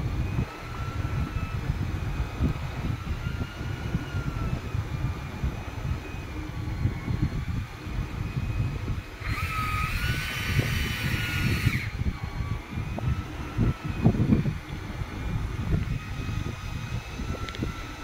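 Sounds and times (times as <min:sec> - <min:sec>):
boat engine running: 0:00.0 - 0:18.0
fishing reel whirring: 0:00.0 - 0:18.0
wind buffeting microphone: 0:00.0 - 0:18.0.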